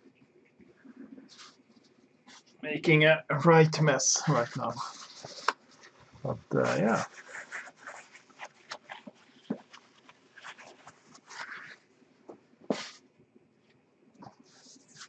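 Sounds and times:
soft rustles: 0:04.2 - 0:13.0.

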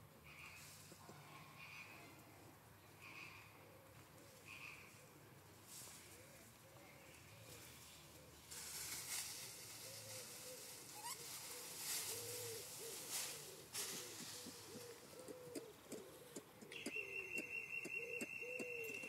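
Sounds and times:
background hiss: 0:04.4 - 0:19.0
lemurs clicking calls: 0:13.9 - 0:19.0.

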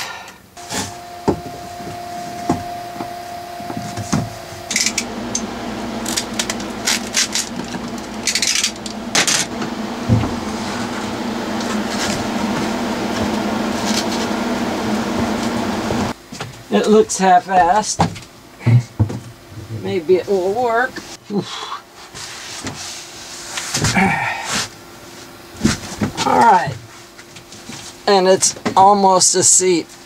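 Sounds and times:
steady mechanical hum: 0:00.0 - 0:30.0
rubbing and rustling with knocks: 0:22.0 - 0:28.6.

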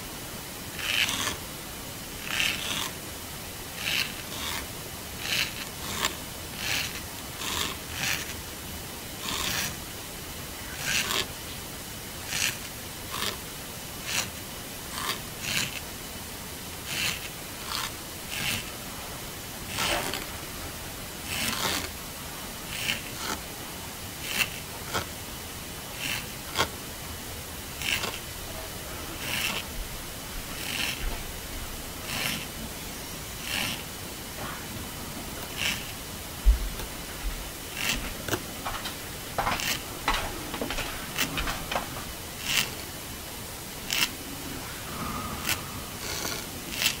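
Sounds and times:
steady hiss: 0:00.0 - 0:47.0
slug mouthparts scraping food: 0:16.9 - 0:18.7, 0:19.7 - 0:20.5, 0:21.2 - 0:21.9, 0:27.8 - 0:28.3, 0:29.1 - 0:29.8, 0:30.4 - 0:31.3, 0:32.0 - 0:32.6, 0:33.4 - 0:34.8, 0:35.4 - 0:36.0, 0:37.7 - 0:38.9, 0:39.5 - 0:42.9, 0:43.8 - 0:47.0.

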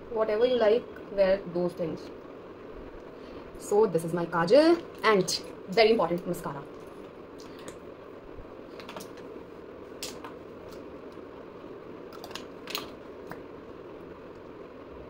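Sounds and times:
steady background hiss: 0:00.0 - 0:15.0
cosmetics clicks and taps: 0:08.8 - 0:09.2.

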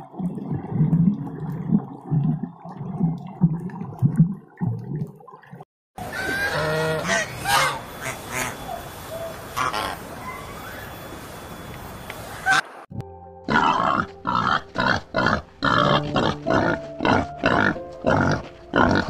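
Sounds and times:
waterfowl honking: 0:06.0 - 0:08.8, 0:09.5 - 0:10.4.

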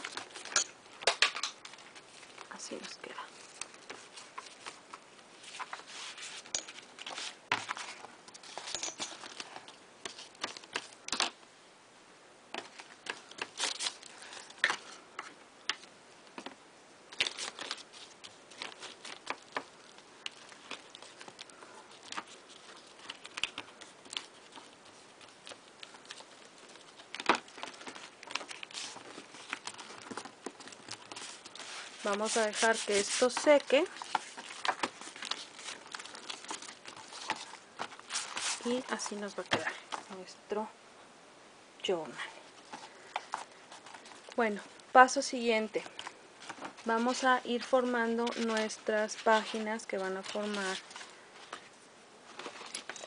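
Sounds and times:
paper rustling and crinkling: 0:00.0 - 0:11.4, 0:12.6 - 0:40.3, 0:42.4 - 0:44.9, 0:45.5 - 0:53.0.

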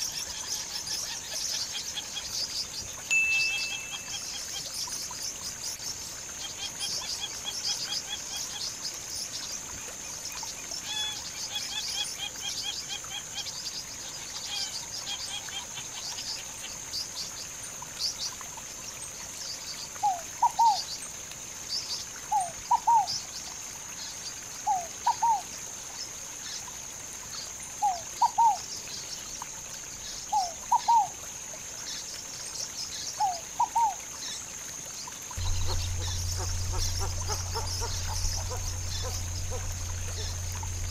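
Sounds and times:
lower two-note bird call: 0:03.1 - 0:04.5, 0:35.4 - 0:40.9
birds chirping: 0:03.1 - 0:04.8, 0:35.4 - 0:40.9
steady high-pitched drone: 0:35.4 - 0:40.9.

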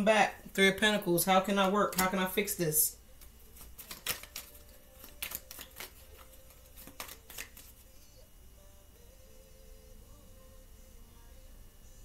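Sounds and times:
cards flicking and tapping: 0:01.9 - 0:02.2, 0:03.2 - 0:07.8.

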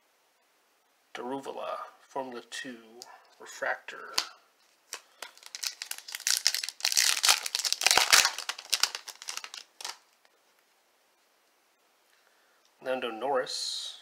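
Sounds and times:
foil wrapper crinkling and tearing: 0:04.9 - 0:10.2.

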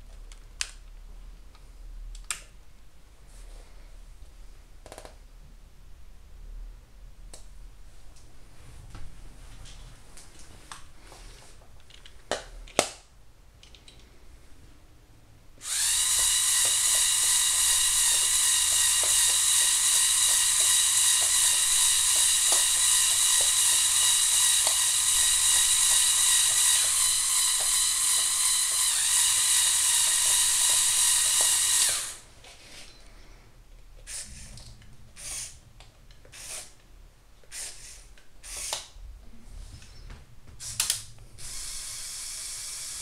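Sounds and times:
toy electric motors whining: 0:15.6 - 0:32.2, 0:36.3 - 0:36.8, 0:37.5 - 0:38.9, 0:40.6 - 0:43.0.

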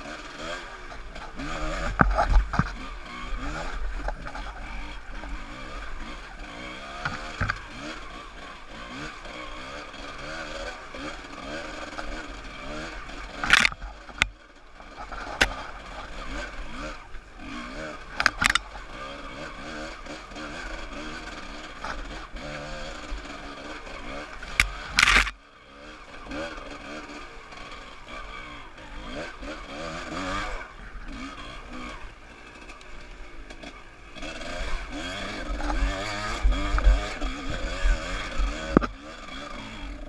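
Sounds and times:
motorbike engine revving: 0:00.0 - 0:40.0
knocks and clatters on rocks: 0:13.4 - 0:14.3, 0:18.2 - 0:18.6, 0:24.6 - 0:25.4.

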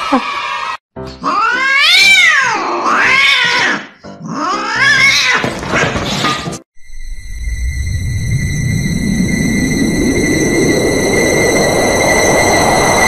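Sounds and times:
cat meowing: 0:00.0 - 0:05.5
steady high tone: 0:06.8 - 0:13.0.

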